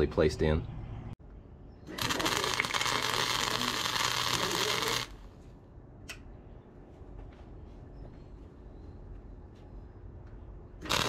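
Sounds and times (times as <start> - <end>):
arc welding: 1.9 - 5.2, 10.8 - 11.0.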